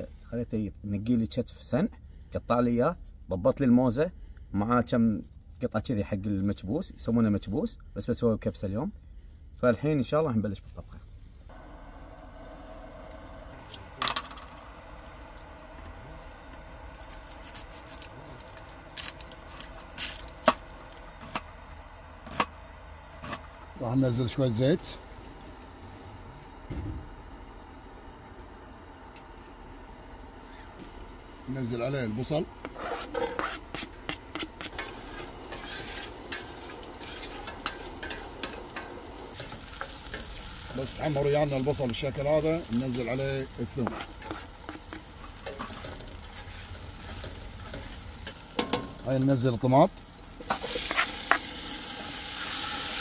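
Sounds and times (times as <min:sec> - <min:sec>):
spoon scraping a pot: 0:32.6 - 0:38.6, 0:43.8 - 0:47.3, 0:50.5 - 0:51.4
onion sizzling in hot oil: 0:32.6 - 0:53.0.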